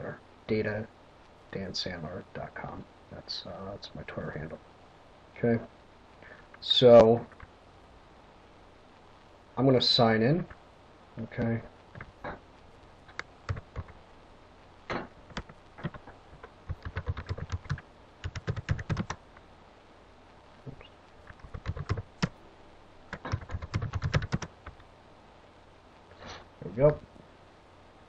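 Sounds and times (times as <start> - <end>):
keyboard typing: 13.1 - 14.0, 15.3 - 19.2, 21.3 - 22.3, 23.1 - 24.8.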